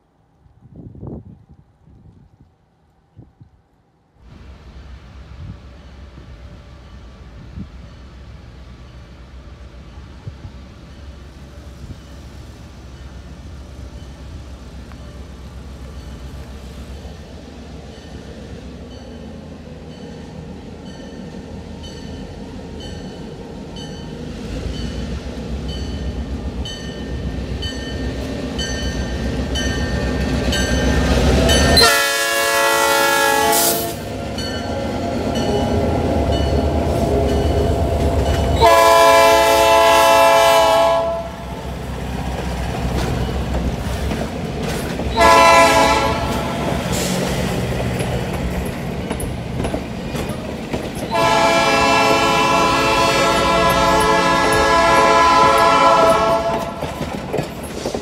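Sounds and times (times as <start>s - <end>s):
diesel locomotive passing: 4.1s - 58.0s
train wheel noise: 4.2s - 58.0s
locomotive horn blast: 31.8s - 34.1s, 36.6s - 41.6s, 45.1s - 46.8s, 51.1s - 56.8s.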